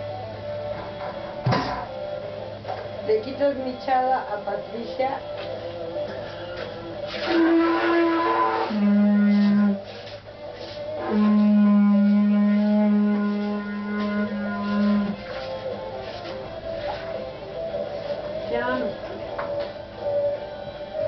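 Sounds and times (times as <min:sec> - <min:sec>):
quiet guitar music: 0:00.0 - 0:21.0
wind horn held notes: 0:07.2 - 0:09.9, 0:11.0 - 0:15.3.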